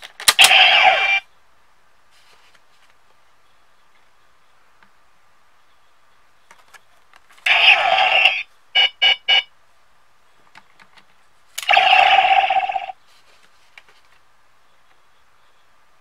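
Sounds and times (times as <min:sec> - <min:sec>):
toy belt sound effects: 0:00.4 - 0:01.2, 0:07.5 - 0:09.4, 0:11.6 - 0:13.0.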